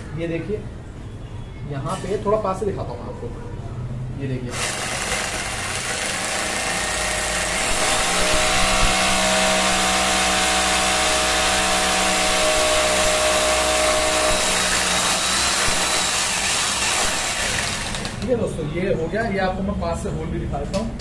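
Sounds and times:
hammer drill boring into wall: 4.5s - 18.3s.

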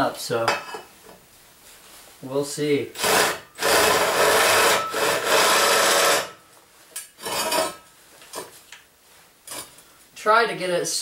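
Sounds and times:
power drill grinding into metal: 3.0s - 6.4s.

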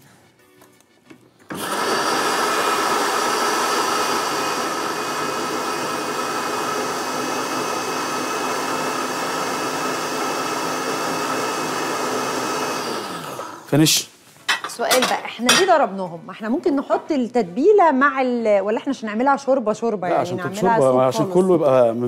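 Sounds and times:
electric blender running: 1.5s - 13.7s.

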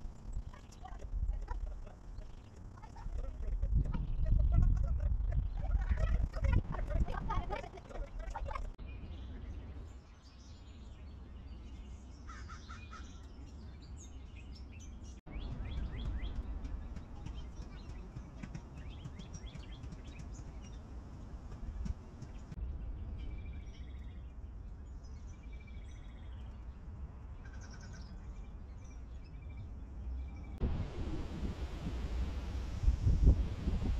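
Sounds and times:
steady low rumble: 0.0s - 9.9s, 29.6s - 33.9s
birds chirping and calling: 0.0s - 30.6s.

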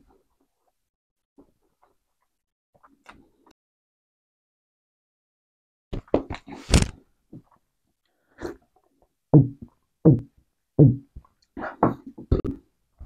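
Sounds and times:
loud deep gulps: 9.4s - 12.7s.

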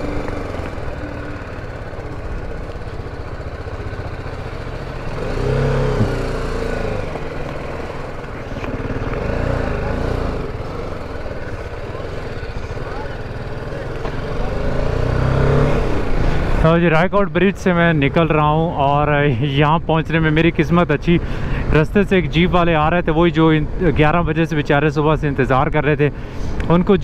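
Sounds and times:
motorcycle engine revving: 0.0s - 16.7s.

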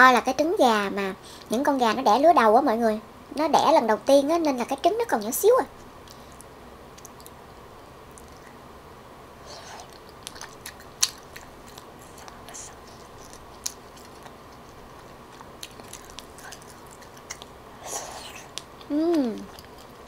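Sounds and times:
wet chewing with smacks: 6.0s - 7.4s, 9.5s - 20.0s.

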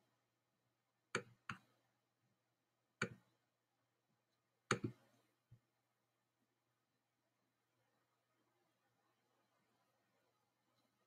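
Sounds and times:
computer mouse clicks: 1.1s - 1.7s, 3.0s - 3.3s, 4.7s - 5.0s.

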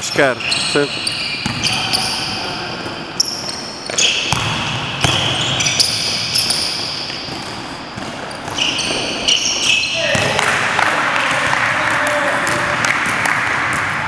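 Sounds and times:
shoes squeaking on court floor: 0.0s - 10.6s
basketball bouncing: 0.4s - 2.1s, 2.8s - 14.0s.

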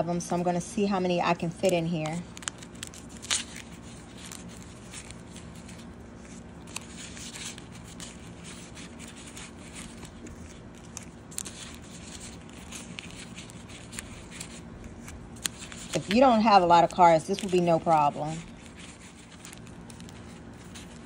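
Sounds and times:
envelopes rustling against fabric: 17.3s - 21.0s.

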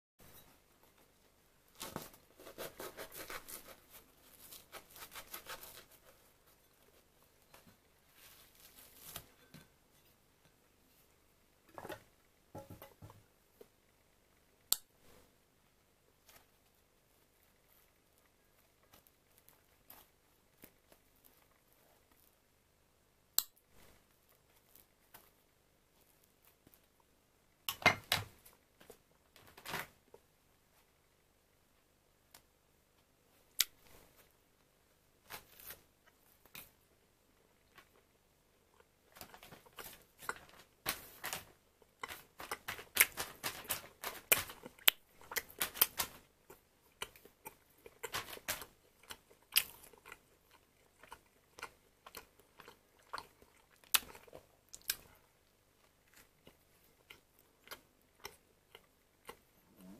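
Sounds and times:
knife sawing through bread crust: 2.4s - 6.2s.

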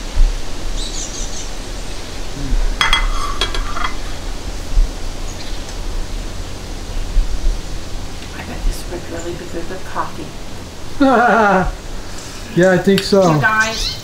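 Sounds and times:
background hiss: 0.0s - 14.0s
ceramic plate clinking: 2.8s - 4.0s.

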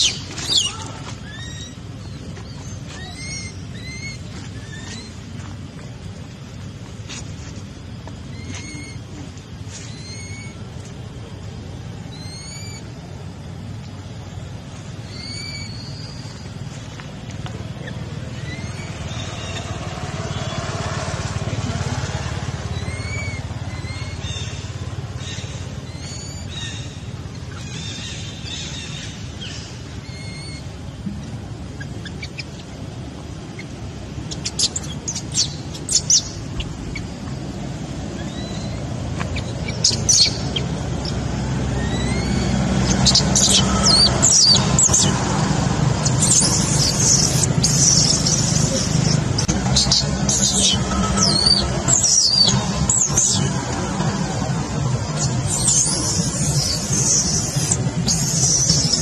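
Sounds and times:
low rumble: 15.8s - 59.0s
high rising chirps: 38.1s - 59.0s.

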